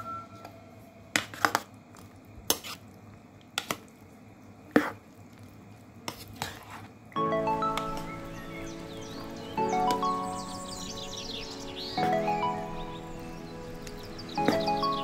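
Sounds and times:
soft wet squishing: 0:01.8 - 0:07.2.

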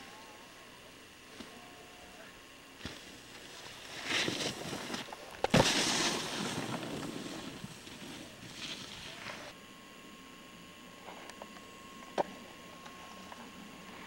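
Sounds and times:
snowboard scraping across snow: 0:02.8 - 0:09.5.

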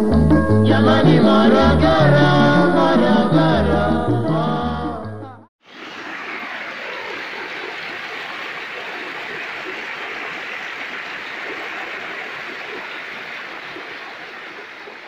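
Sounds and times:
waterfall rushing: 0:05.7 - 0:15.0.

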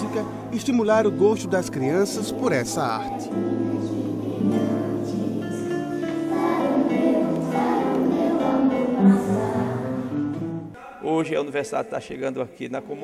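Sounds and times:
children singing together: 0:01.9 - 0:10.2.

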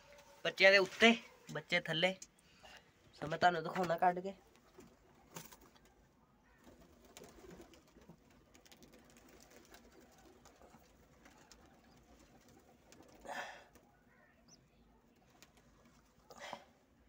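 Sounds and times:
faint pigeon cooing: 0:04.6 - 0:17.0.

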